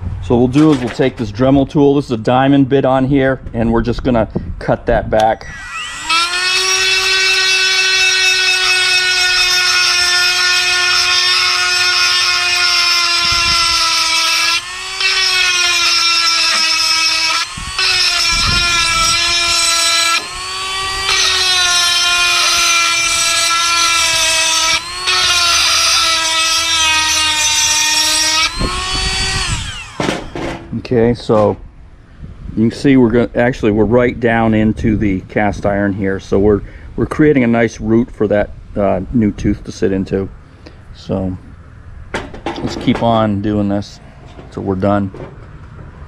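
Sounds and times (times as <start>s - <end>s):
rotary tool grinding metal: 5.4s - 30.5s.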